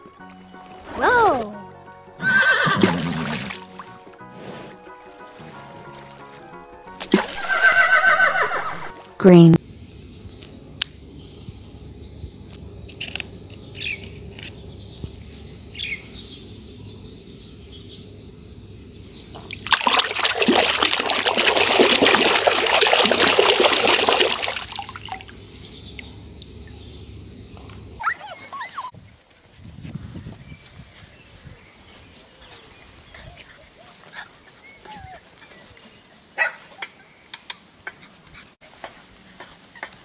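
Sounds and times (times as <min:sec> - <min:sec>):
water splashing in a basin: 0:02.8 - 0:03.8, 0:07.0 - 0:07.8, 0:19.5 - 0:25.8.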